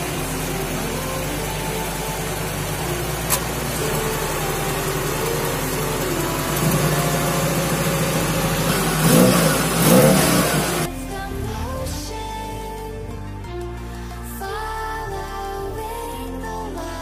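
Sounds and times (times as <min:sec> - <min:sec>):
car engine running and revving: 0:00.0 - 0:12.5.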